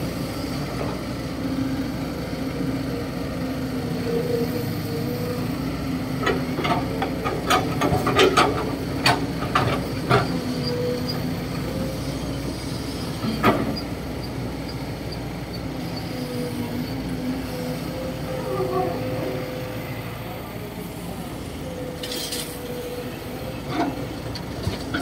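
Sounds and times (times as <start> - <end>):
excavator diesel engine running: 0.0 - 25.0
excavator bucket clanking: 6.2 - 10.9.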